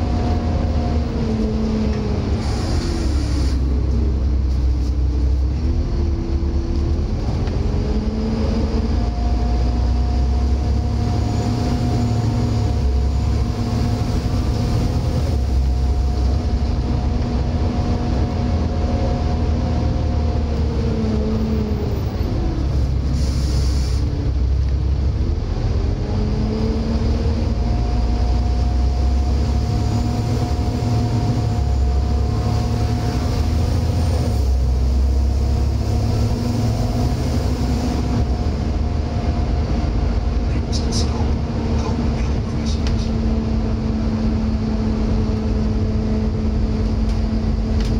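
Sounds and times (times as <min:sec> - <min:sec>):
bus engine and gearbox whine: 0:00.0 - 0:47.9.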